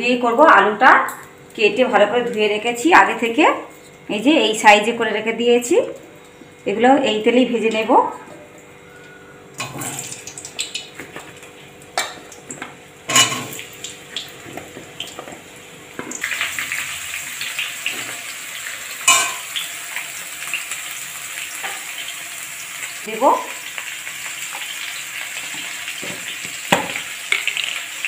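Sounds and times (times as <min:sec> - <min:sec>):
potatoes sizzling in oil: 0:09.6 - 0:28.0
potatoes dropping into hot oil: 0:25.6 - 0:28.0.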